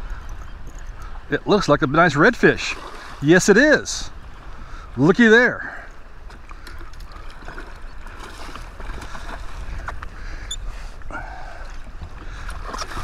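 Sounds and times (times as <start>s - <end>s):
wind rumbling on microphone: 0.0s - 5.1s, 6.0s - 13.0s.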